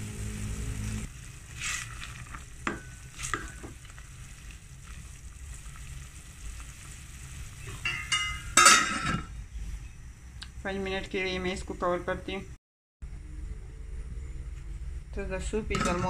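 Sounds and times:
soup bubbling: 0.0 - 8.6
wooden spoon stirring soup: 1.2 - 5.9.

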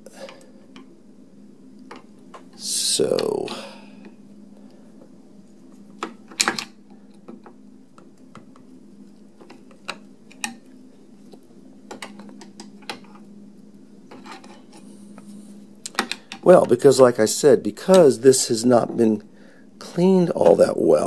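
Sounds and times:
steady low hum: 0.0 - 21.0
metal tools clicking and tapping: 15.9 - 16.8.

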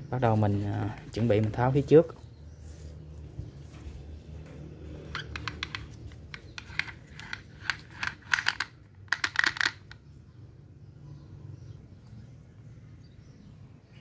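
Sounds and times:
metal parts clicking and rattling: 5.0 - 10.0.

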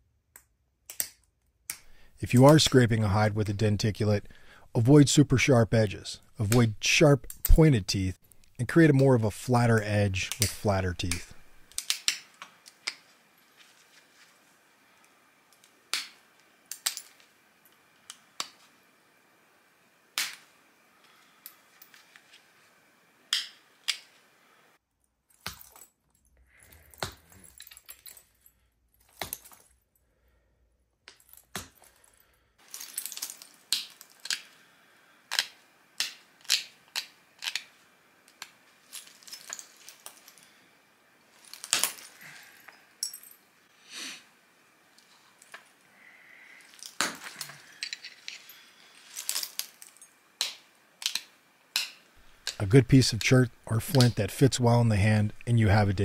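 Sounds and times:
stone flakes clicking and snapping: 10.3 - 13.1, 15.5 - 17.3, 32.6 - 34.6, 35.3 - 37.7, 46.6 - 52.6.

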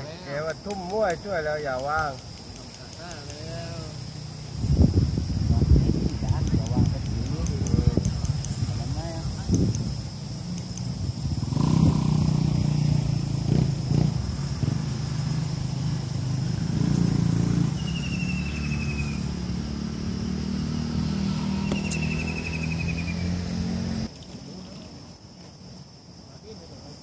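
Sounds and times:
small engine droning: 10.2 - 24.1.

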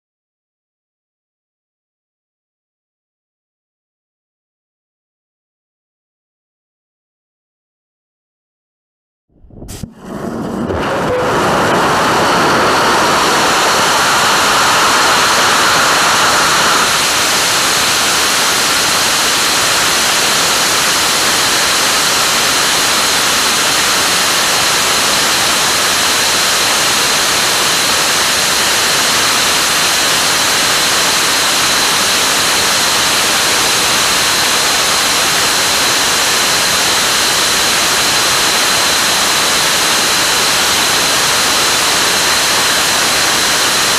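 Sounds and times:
rocket engine roaring: 9.4 - 43.9.

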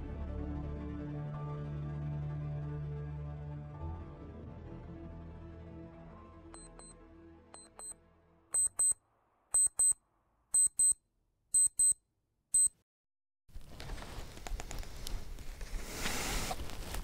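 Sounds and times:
wristwatch alarm beeping: 6.6 - 6.9, 7.6 - 7.9, 8.6 - 9.0, 9.6 - 10.0, 10.6 - 11.0, 11.6 - 12.0.

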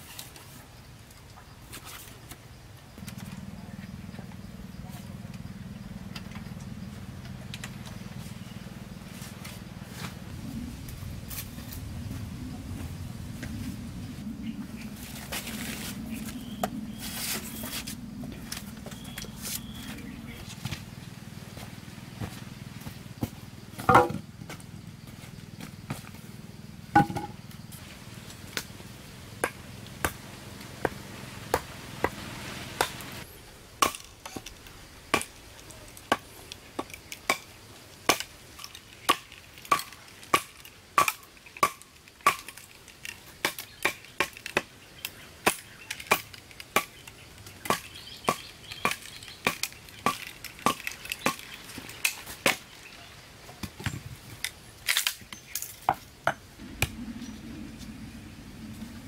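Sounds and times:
blade chopping wood: 23.8 - 24.2, 29.4 - 30.2, 32.8 - 33.0, 33.8 - 34.5, 38.1 - 42.6, 47.6 - 52.7.

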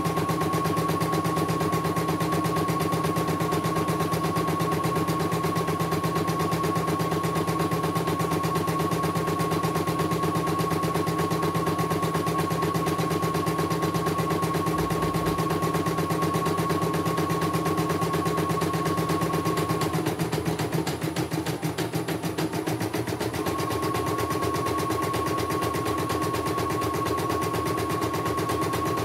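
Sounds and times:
high motor whine: 10.3 - 20.0.

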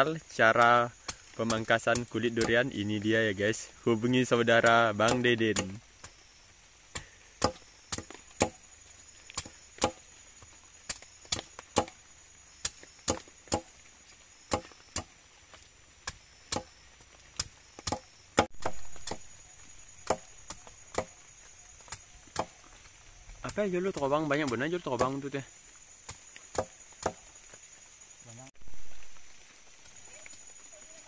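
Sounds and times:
machete chopping husk: 7.0 - 8.6, 10.9 - 12.0, 12.6 - 13.7, 14.5 - 15.1, 17.4 - 19.4, 20.0 - 21.2.

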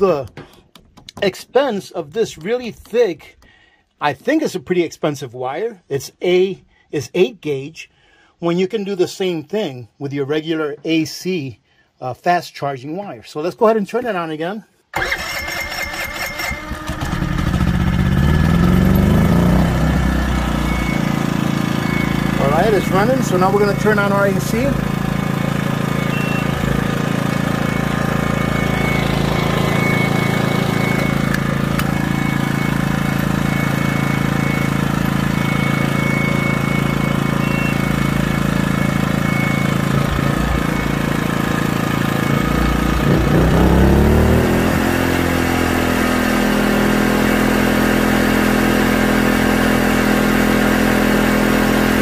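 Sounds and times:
small generator engine running: 15.0 - 52.0.

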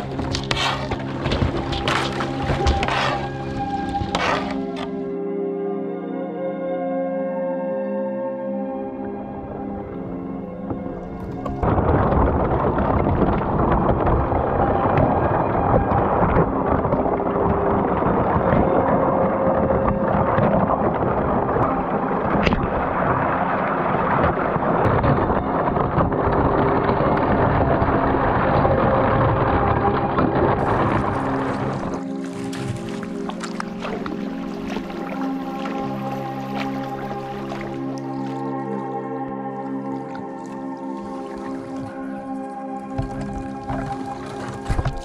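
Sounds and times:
ice cracking against kayak hull: 0.0 - 5.2, 9.9 - 45.0
low rumble: 9.2 - 42.4.

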